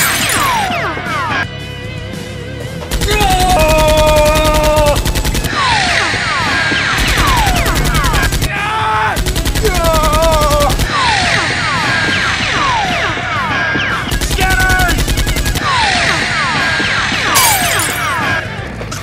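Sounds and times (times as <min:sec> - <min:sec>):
automatic gunfire: 0:02.9 - 0:05.6, 0:07.0 - 0:08.5, 0:09.2 - 0:11.0, 0:14.1 - 0:15.9.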